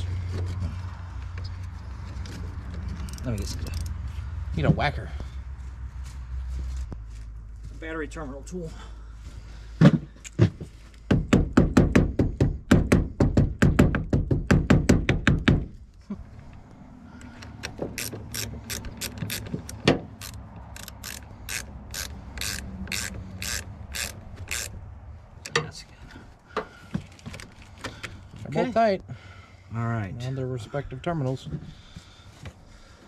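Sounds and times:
ratchet wrench clicking: 17.5s - 24.8s.

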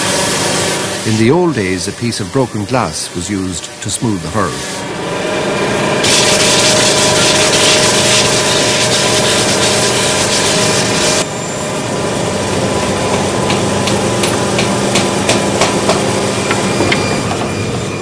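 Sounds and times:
sanding machine motor hum: 0.0s - 18.0s
rasping hiss of wood sanding: 6.0s - 11.2s.

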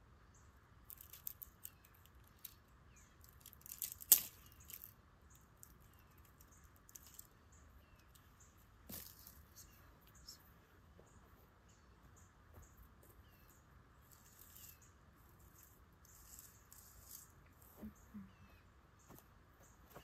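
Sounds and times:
twigs snapping and crackling: 0.8s - 7.4s.

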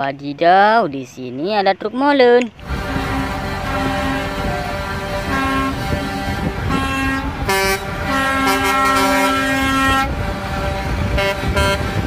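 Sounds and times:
diesel engines rumbling: 0.0s - 12.0s
truck air horns blaring: 2.6s - 12.0s.

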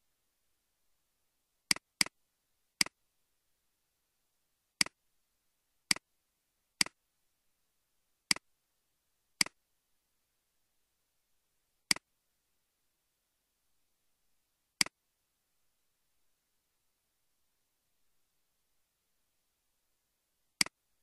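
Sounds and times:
computer mouse clicks: 1.7s - 2.2s.

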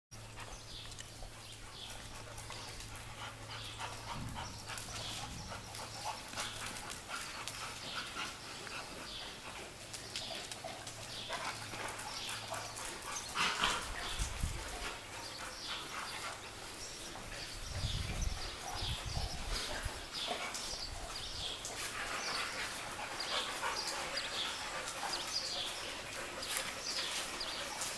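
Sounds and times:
dogs barking: 10.3s - 27.9s.

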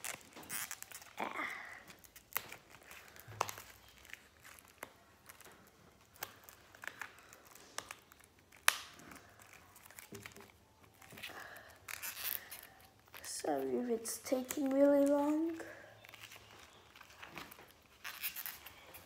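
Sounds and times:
plastic wrap crinkling: 0.0s - 19.0s.

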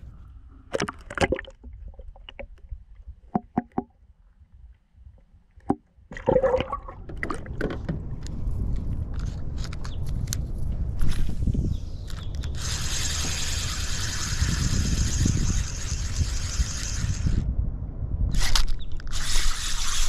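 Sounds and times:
water splashing and sloshing: 0.0s - 4.0s, 5.2s - 9.3s
low rumble of moving water: 0.0s - 9.6s.

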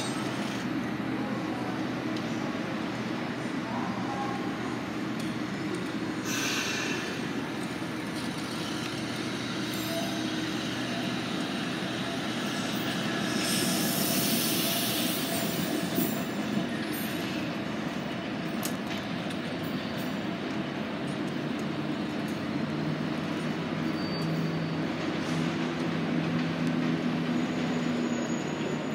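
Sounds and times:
wheels squealing: 0.0s - 0.7s, 6.2s - 17.4s, 23.6s - 25.6s, 26.8s - 28.9s
streetcar wheels rumbling on rails: 0.0s - 28.9s.

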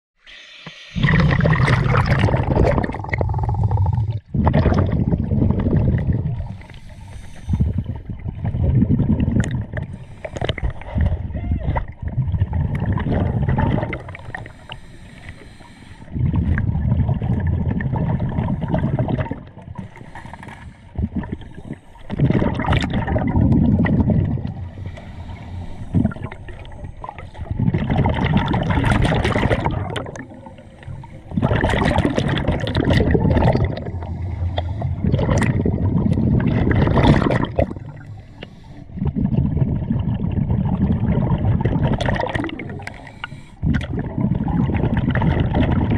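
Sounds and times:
regulator inhalations: 0.2s - 1.2s, 6.4s - 8.0s, 9.9s - 10.9s, 14.2s - 16.2s, 19.8s - 22.1s, 24.6s - 27.5s, 37.8s - 39.0s, 42.7s - 43.6s
diver exhaling bubbles underwater: 0.3s - 14.6s, 16.1s - 20.0s, 20.9s - 45.9s.

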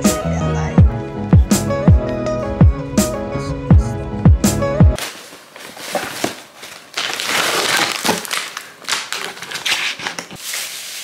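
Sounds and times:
packaging crinkling and rustling: 5.0s - 11.0s.

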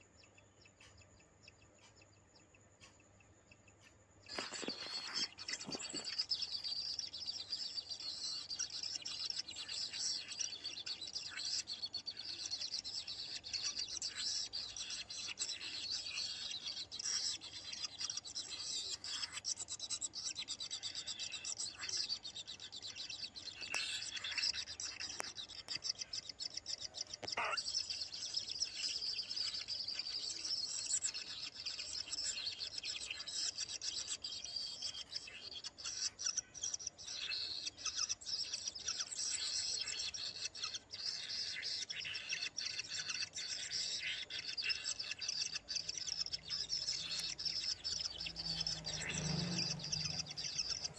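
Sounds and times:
nestlings begging chirps: 0.0s - 50.9s
bird squawk: 27.2s - 50.9s.

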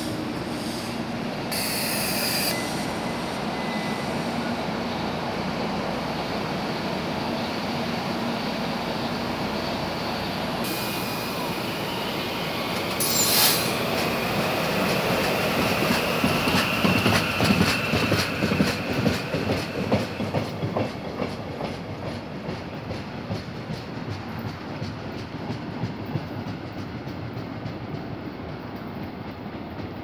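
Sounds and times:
train air hiss: 0.0s - 24.5s
train wheels thumping: 12.7s - 30.0s.

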